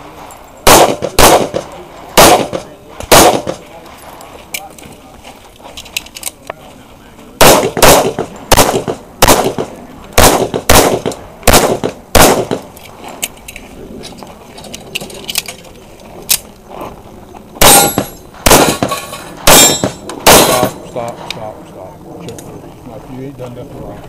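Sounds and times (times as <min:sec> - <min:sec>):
pistol shots: 0:00.6 - 0:03.6, 0:07.4 - 0:12.7, 0:17.6 - 0:20.8.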